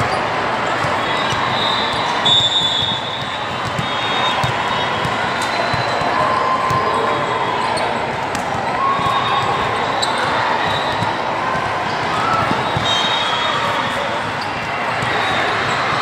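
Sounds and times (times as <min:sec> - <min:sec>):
hubbub of voices: 0:00.0 - 0:16.0
volleyball struck and bouncing: 0:00.8 - 0:06.9, 0:08.1 - 0:09.2
shoes squeaking on floor: 0:09.0 - 0:11.0.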